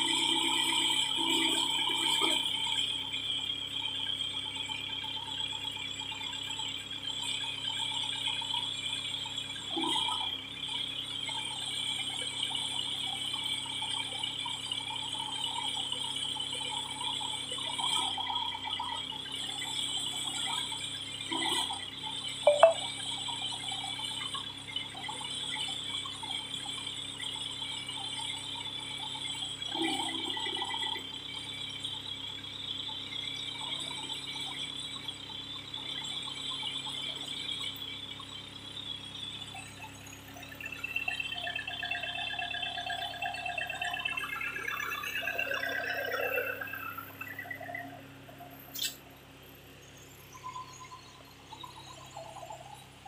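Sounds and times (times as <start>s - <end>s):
backhoe engine running with rattle: 23.0s - 45.8s.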